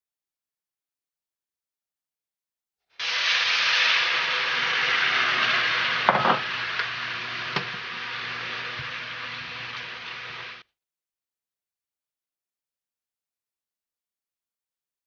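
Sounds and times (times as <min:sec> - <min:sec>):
wine sizzling in a hot pan: 0:03.0 - 0:10.7.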